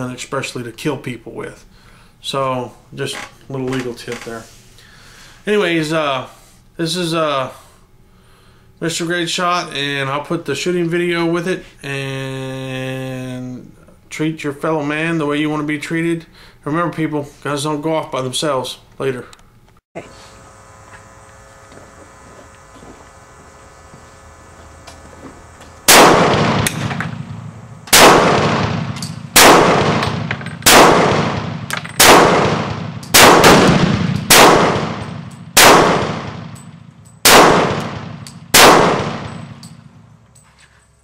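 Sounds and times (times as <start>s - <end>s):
pistol shots with echo: 25.9s - 39.6s.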